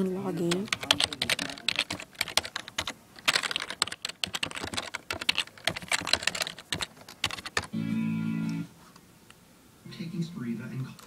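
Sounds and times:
keyboard typing clicks: 0.5s - 7.7s.

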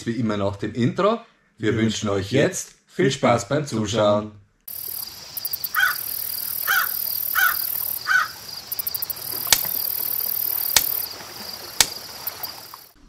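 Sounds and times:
insects chirring: 4.7s - 13.0s
short calls: 4.7s - 13.0s.

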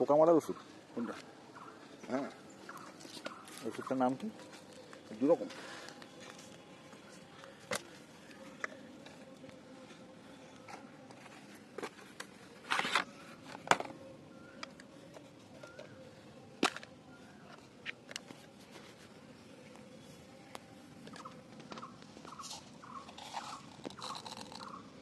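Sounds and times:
foil packet crinkling: 23.1s - 24.7s
plastic bottles clicking: 23.1s - 24.8s.

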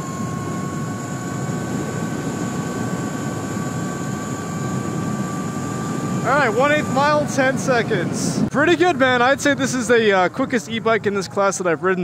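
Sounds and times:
rushing wind: 0.0s - 10.8s
electric motor whine: 0.0s - 12.0s.

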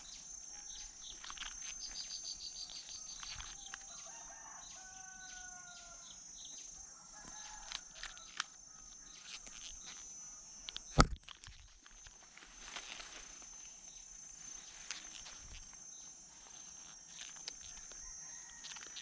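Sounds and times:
insects shrilling: 0.0s - 6.3s, 7.2s - 19.0s
rooster crowing: 3.6s - 6.2s, 6.8s - 8.4s, 17.7s - 19.0s
slingshot rubber bands snapping: 10.7s - 11.6s.

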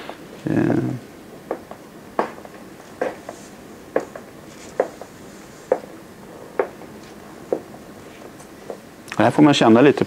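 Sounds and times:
soft knocks: 1.5s - 6.0s, 6.6s - 8.9s.

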